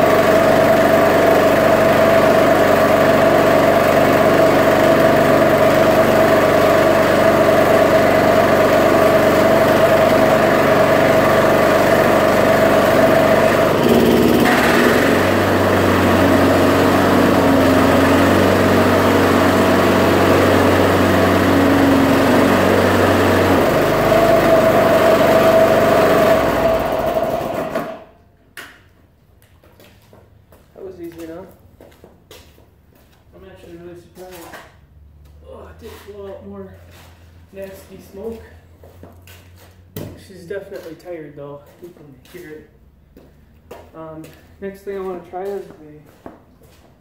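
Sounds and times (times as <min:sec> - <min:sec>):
lawnmower engine running: 0:00.0 - 0:28.2.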